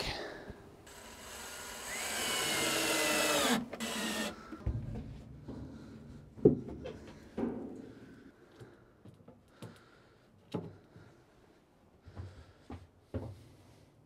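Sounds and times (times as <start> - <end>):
power tool cutting wood: 0.9 - 4.4.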